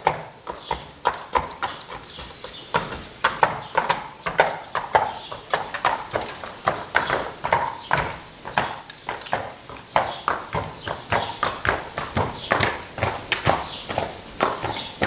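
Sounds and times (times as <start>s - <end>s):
horse hooves clip-clopping on concrete: 0.0s - 15.0s.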